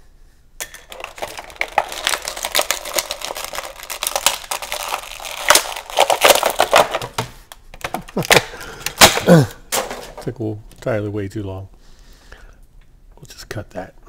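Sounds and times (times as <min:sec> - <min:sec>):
plastic packaging crinkling: 0:00.8 - 0:10.3.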